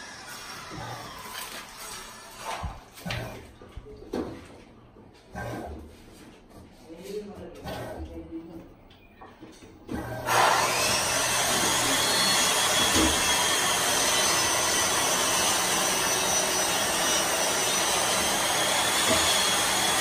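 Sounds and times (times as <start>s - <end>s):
water rushing in washing machine: 9.9s - 20.0s.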